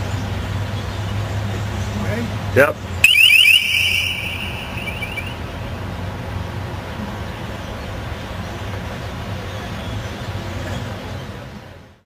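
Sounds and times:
high bird-deterrent tone: 3.0s - 5.8s.

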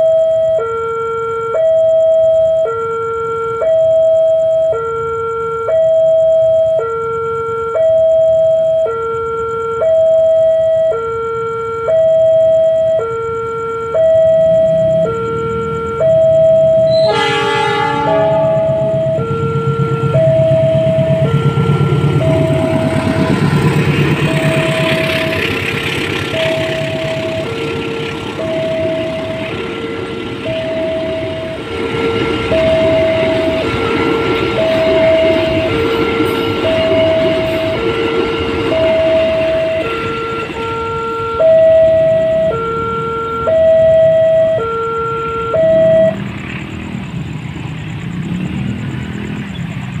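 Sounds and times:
level crossing two-tone alarm: 0.0s - 47.3s
diesel train rumble: 1.4s - 50.0s
motorcycle engines idling: 14.4s - 40.7s.

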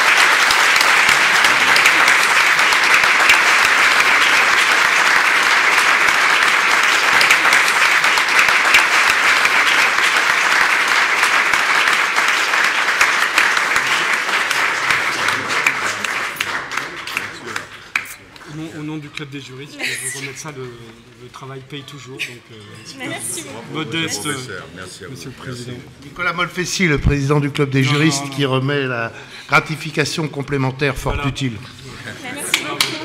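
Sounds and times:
audience applauding: 0.0s - 18.6s.

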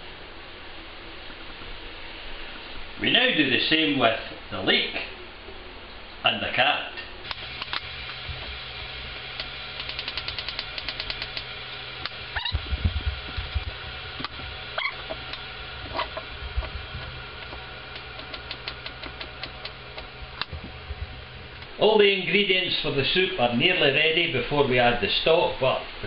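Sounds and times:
heavier thump: 12.4s - 13.8s.

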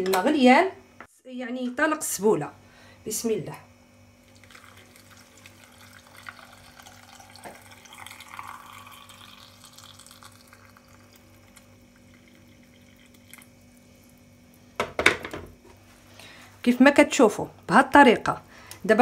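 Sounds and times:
water trickling into a jar: 4.2s - 14.7s.

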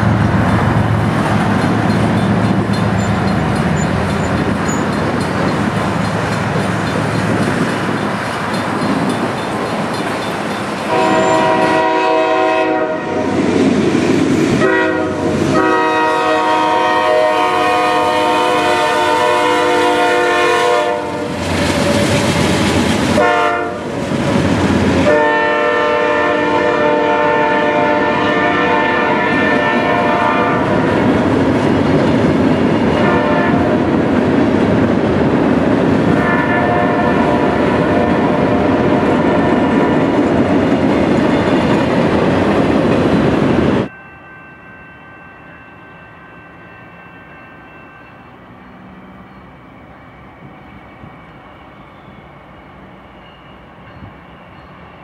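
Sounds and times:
freight cars rumbling on rails: 0.0s - 43.9s
locomotive air horn blasts: 10.9s - 13.3s, 14.6s - 21.4s, 23.2s - 23.9s, 25.0s - 30.8s, 32.9s - 33.8s, 36.2s - 38.5s.

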